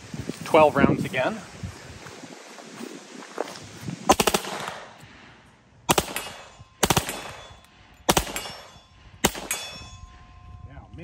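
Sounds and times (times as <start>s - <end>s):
submachine gun firing bursts: 4.1s - 4.9s, 5.9s - 7.5s, 8.1s - 8.6s.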